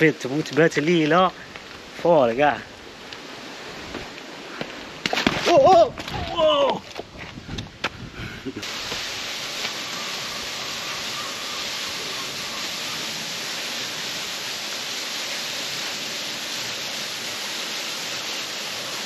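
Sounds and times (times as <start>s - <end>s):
water rushing over rocks: 3.2s - 7.1s, 8.6s - 19.0s.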